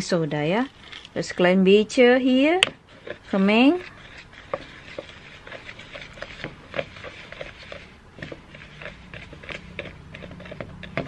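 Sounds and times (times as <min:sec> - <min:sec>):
whisk scraping mixing bowl: 0:02.7 - 0:11.0.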